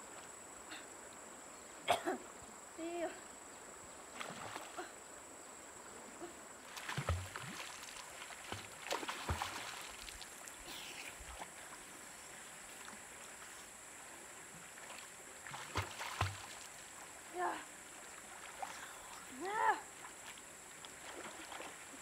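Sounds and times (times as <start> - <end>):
water splashing from swimming: 4.1 - 5.0, 6.6 - 13.6, 14.6 - 22.0.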